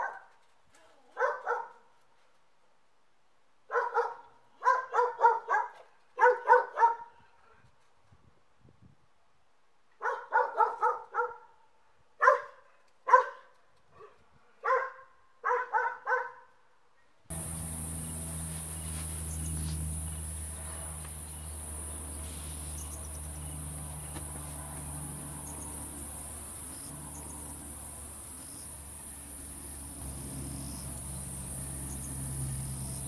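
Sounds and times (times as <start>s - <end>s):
crickets chirping: 17.3s - 33.0s
low hum: 17.3s - 33.0s.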